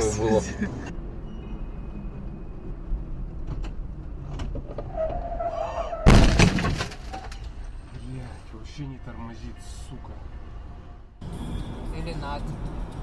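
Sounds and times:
driver talking: 0.0s - 0.9s, 8.0s - 10.4s
road rumble inside a car: 0.0s - 10.2s
loud collision bang: 6.0s - 7.1s.

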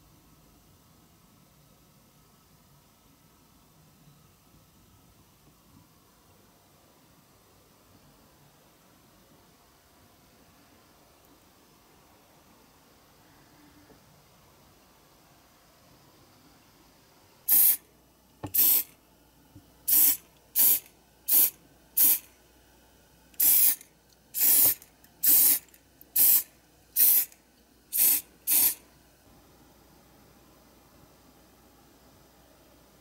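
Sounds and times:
aerosol spray hissing bursts: 17.5s - 17.8s, 18.4s - 18.9s, 19.9s - 22.3s, 23.4s - 23.8s, 24.4s - 27.3s, 27.9s - 28.8s.

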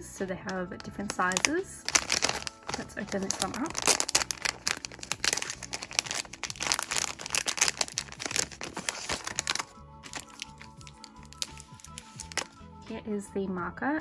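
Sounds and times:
faint background music: 0.0s - 14.0s
plastic bag crinkling: 1.0s - 12.6s.

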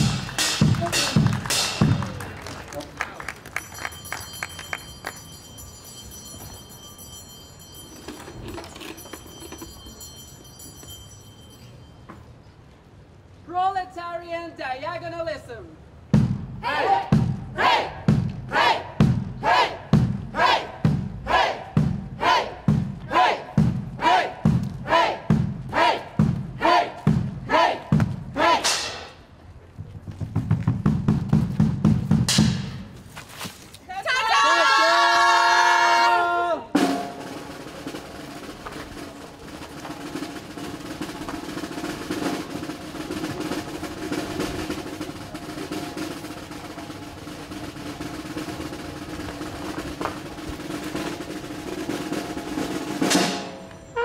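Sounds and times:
drum beats: 0.0s - 2.8s, 16.1s - 29.3s, 29.9s - 33.0s, 36.7s - 53.8s
group shouting chant-like cries: 16.6s - 28.7s.

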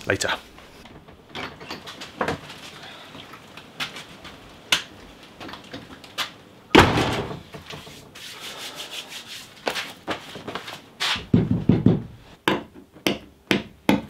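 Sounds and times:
garage door closing thud: 6.7s - 7.5s
door clicks and knocks: 11.3s - 12.1s.

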